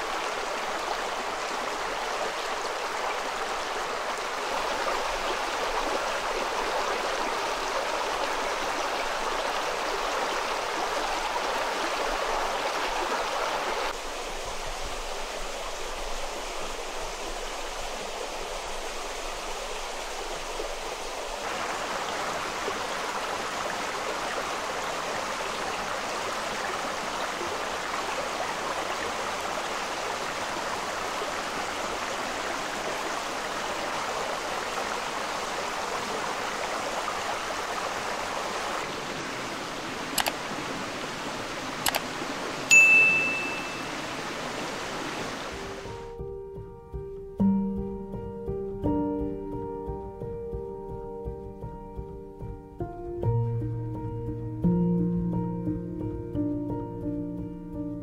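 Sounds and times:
stream rushing: 0.0s - 46.2s.

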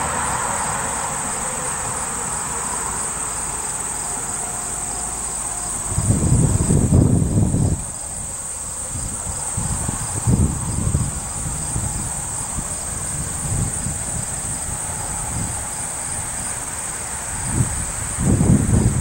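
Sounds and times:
insects chorus with crickets: 0.0s - 19.0s
wind buffeting microphone: 5.3s - 19.0s.

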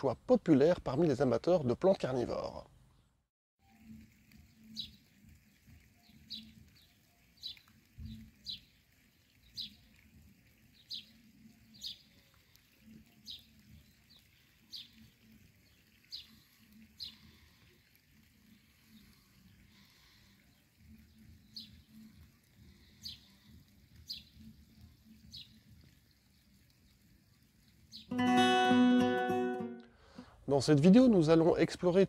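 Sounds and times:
bird chirping: 3.8s - 17.4s.

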